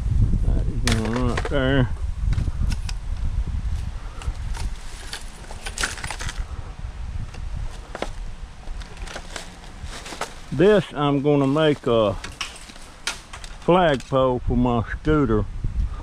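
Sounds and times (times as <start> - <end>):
steady low rumble: 0.0 - 16.0
scrap metal clicks and rattles: 4.2 - 6.4, 7.7 - 10.8, 11.4 - 14.2.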